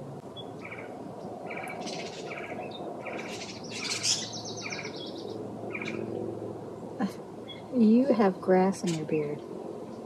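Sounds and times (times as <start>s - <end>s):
songbird chirps: 0.2s - 10.0s
fast rattling bird trill: 1.5s - 6.1s.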